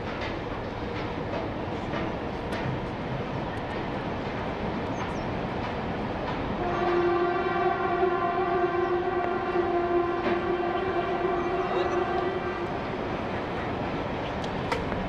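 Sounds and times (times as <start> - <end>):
steady horn-like tone: 6.6 - 12.8.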